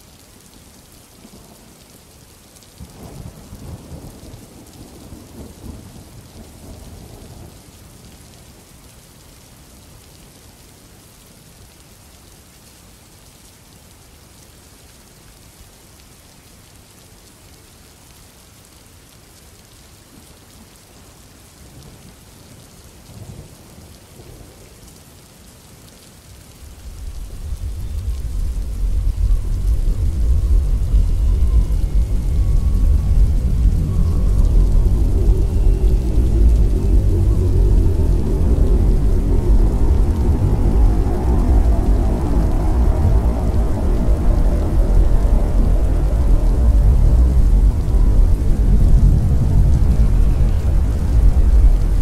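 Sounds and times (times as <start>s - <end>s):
steady rain: 0.0s - 52.0s
thunder rumbling: 26.6s - 52.0s.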